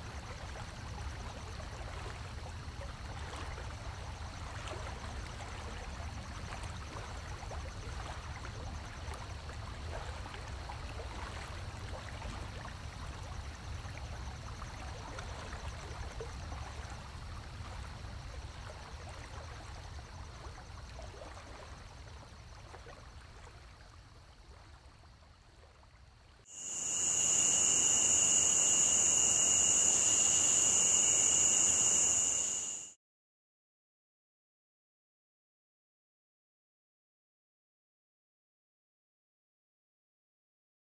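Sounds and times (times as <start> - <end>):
high-pitched insect drone: 26.5 - 33.0
stream rushing: 26.6 - 32.8.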